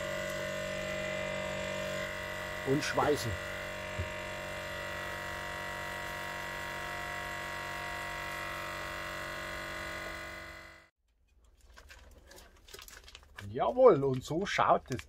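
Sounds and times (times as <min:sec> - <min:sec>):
vacuum sealer pump humming: 0:00.0 - 0:10.9.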